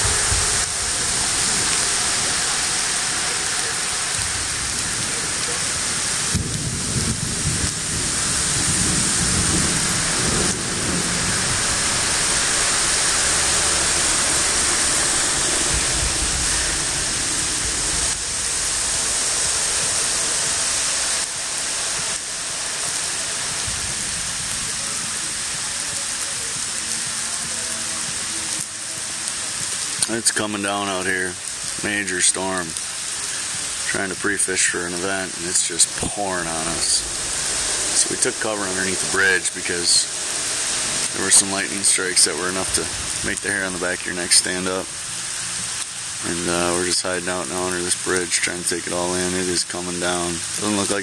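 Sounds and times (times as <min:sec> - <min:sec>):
deep thunder rumbling: 0:00.0 - 0:24.7, 0:33.8 - 0:44.1
heavy rain on lake water: 0:00.0 - 0:51.0.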